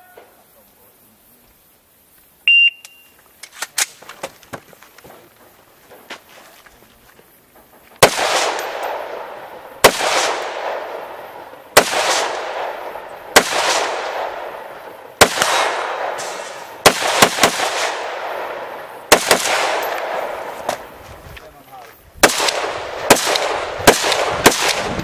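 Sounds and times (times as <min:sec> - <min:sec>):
rifle shots echoing: 0:08.0 - 0:21.0, 0:22.2 - 0:25.0.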